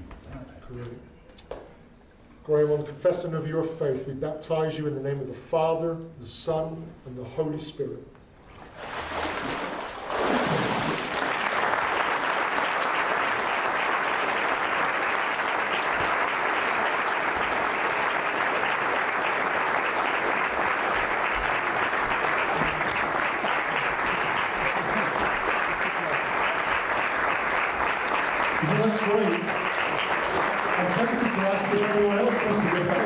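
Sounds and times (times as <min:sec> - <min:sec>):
congregation applauding: 0:09.3 - 0:33.0.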